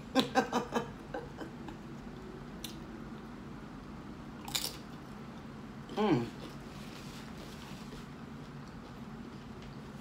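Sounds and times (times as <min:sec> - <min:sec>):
chip crunch: 0:04.4 - 0:05.0.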